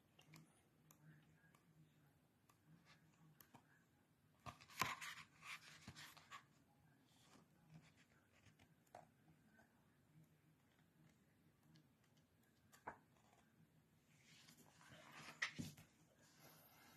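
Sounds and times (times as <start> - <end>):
book pages turning: 4.4 - 6.5, 14.2 - 16.0.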